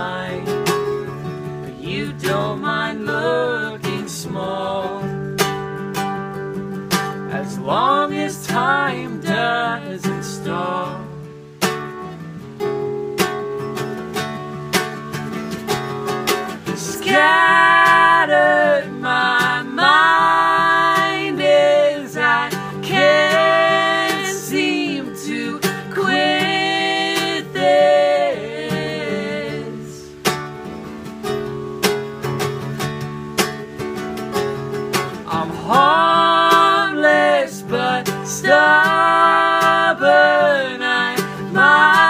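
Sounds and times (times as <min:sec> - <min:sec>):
man and woman singing: 0:00.0 - 0:05.5, 0:07.2 - 0:11.4, 0:16.5 - 0:30.3, 0:35.1 - 0:42.0
guitar picking: 0:00.0 - 0:42.0.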